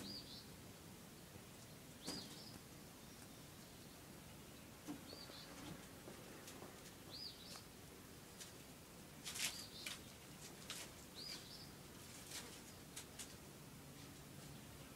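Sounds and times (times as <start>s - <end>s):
bird chirping: 0.0s - 0.6s, 1.6s - 5.8s, 7.0s - 7.7s, 9.4s - 10.2s, 11.1s - 11.8s
light scuffs and rustles: 8.3s - 14.6s.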